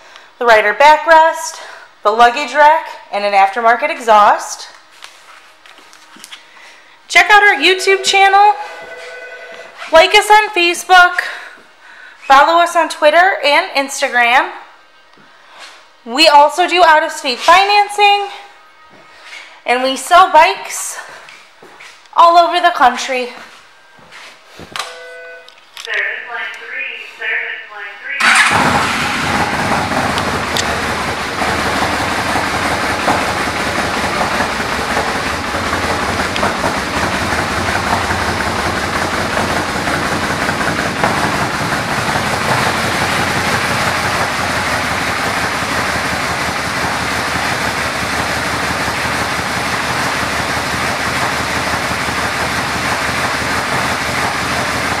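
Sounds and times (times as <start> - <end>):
motorcycle engine idling: 28.2 - 55.0.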